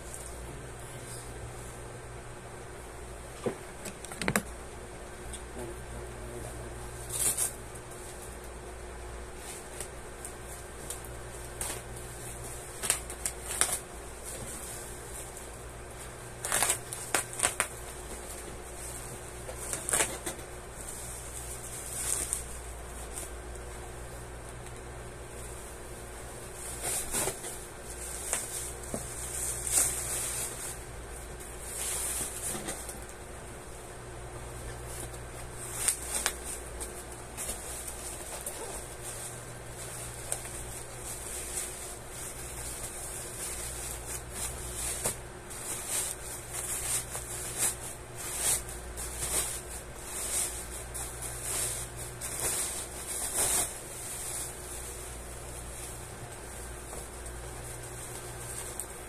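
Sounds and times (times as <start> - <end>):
steady low hum: 0.0 - 59.0
plastic wrapping crinkling: 9.4 - 23.4, 26.5 - 33.2, 34.7 - 59.0.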